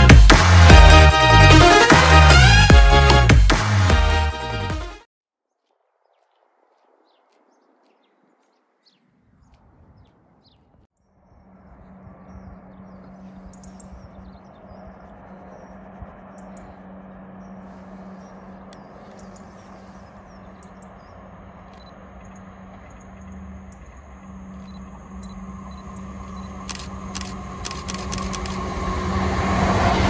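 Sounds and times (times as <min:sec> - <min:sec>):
small birds chirping: 0:05.5 - 0:11.5, 0:12.2 - 0:28.6
diesel train approaching: 0:12.7 - 0:30.0.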